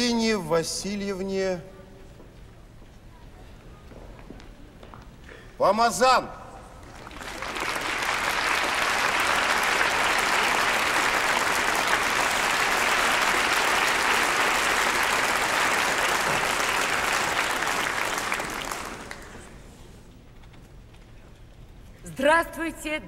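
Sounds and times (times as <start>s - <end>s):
audience applauding: 6.8s - 19.8s.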